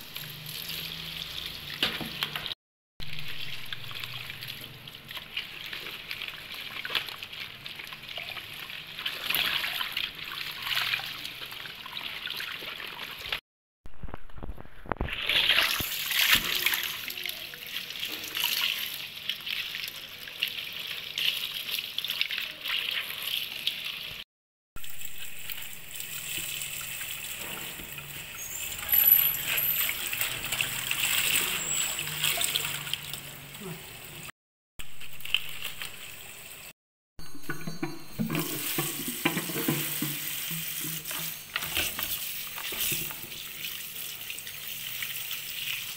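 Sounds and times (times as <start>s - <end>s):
water splashing on leaves: 0.0s - 12.1s, 24.8s - 33.4s, 34.9s - 36.3s
tap water running into sink: 37.5s - 45.9s.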